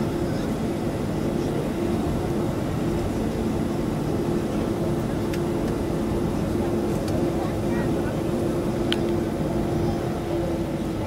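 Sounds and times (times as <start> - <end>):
jet airliner cabin rumble: 0.0 - 11.0.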